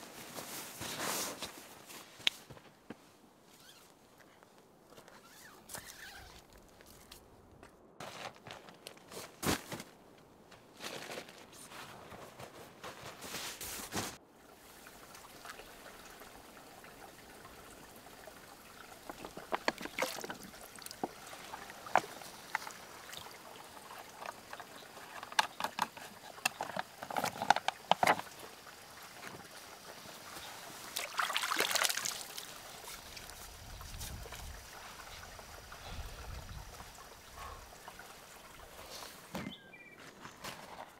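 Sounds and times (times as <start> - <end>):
water splashing and dripping: 14.4 - 39.0.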